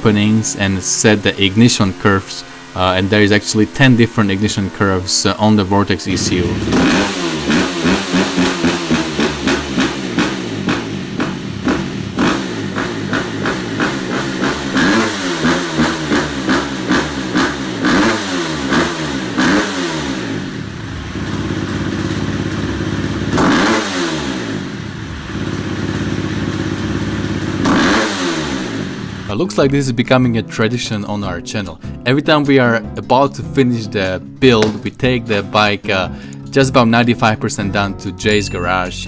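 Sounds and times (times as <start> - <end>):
dirt bike engine revving: 0.0 - 29.5.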